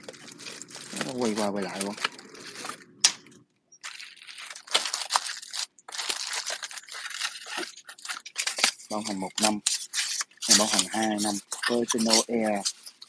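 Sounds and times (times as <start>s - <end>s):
plastic wrapping crinkling: 0.0s - 13.0s.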